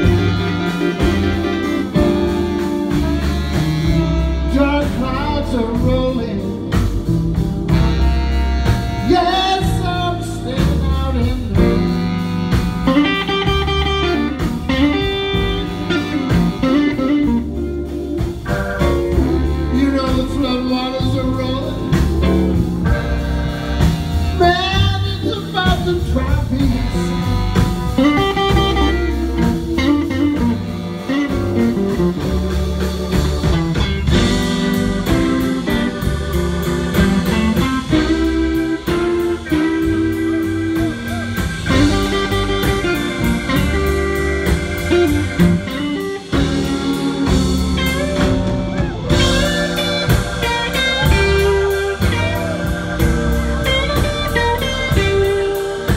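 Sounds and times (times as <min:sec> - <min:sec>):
bass: 0:00.0 - 0:55.9
drums: 0:00.0 - 0:55.9
electric guitar lead lines: 0:11.2 - 0:55.9.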